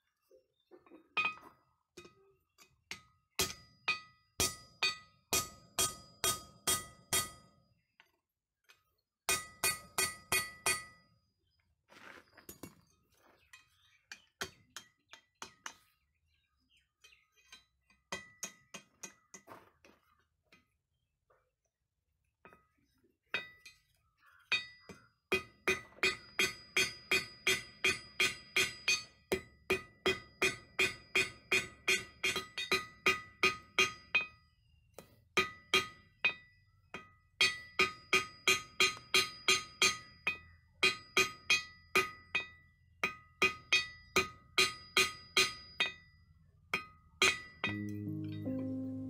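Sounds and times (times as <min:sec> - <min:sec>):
hammer striking steel on anvil: 0:02.9 - 0:07.6, 0:09.3 - 0:11.0, 0:24.6 - 0:34.3.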